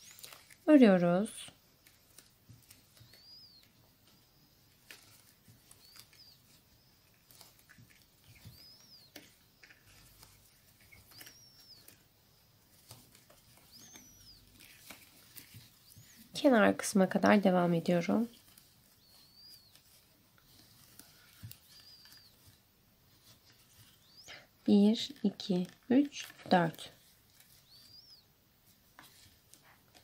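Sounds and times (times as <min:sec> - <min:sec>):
high squeaks of yarn: 0:13.6 - 0:16.4.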